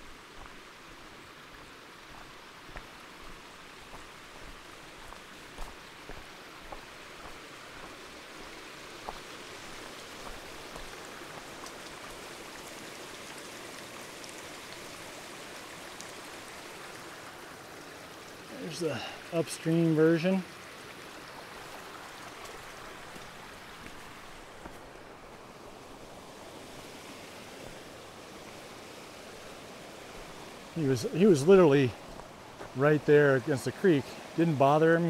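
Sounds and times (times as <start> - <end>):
creek running over rocks: 0.0 - 35.0
footsteps crunching on scree: 2.1 - 11.7, 22.4 - 25.0, 32.0 - 32.8.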